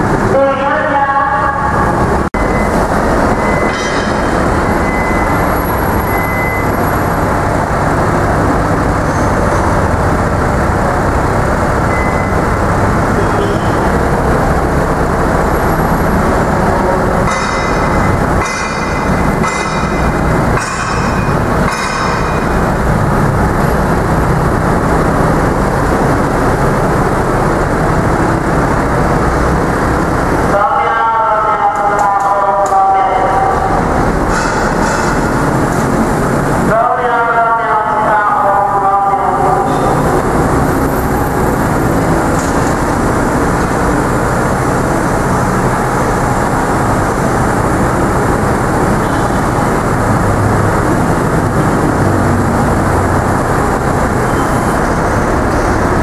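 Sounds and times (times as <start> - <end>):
truck engine running: 0.0 - 56.0.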